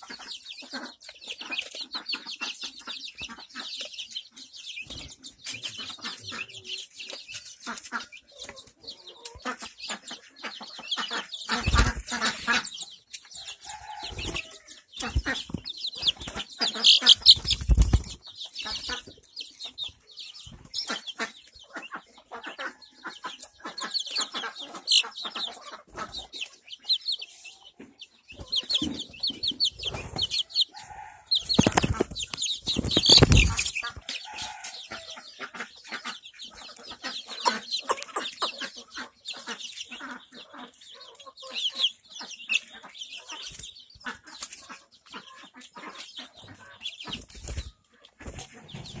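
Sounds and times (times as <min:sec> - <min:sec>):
chicks peeping: 0:00.0 - 0:49.0
wing flapping: 0:15.1 - 0:18.2.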